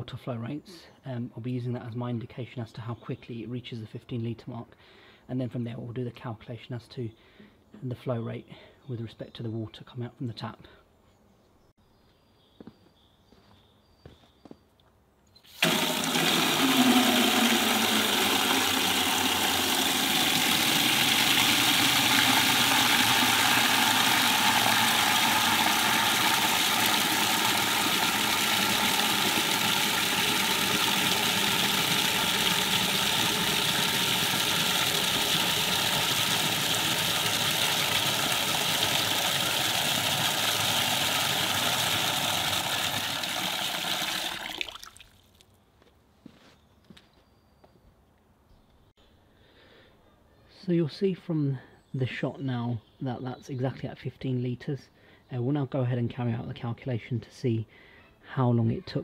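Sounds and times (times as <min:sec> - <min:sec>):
tap water gushing into bucket: 0:15.5 - 0:45.4.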